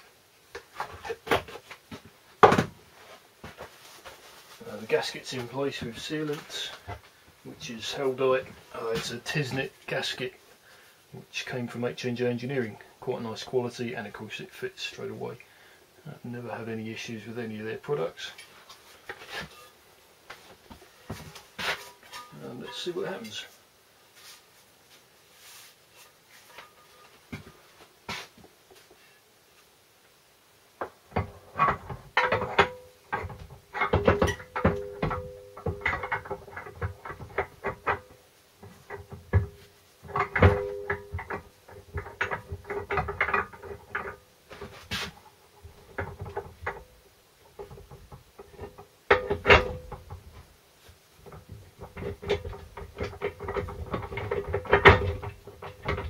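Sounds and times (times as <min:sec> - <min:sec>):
metal clunks and scrapes: 0:18.4 - 0:19.8, 0:21.0 - 0:23.4, 0:30.8 - 0:46.9, 0:47.5 - 0:50.4, 0:51.2 - 0:56.0.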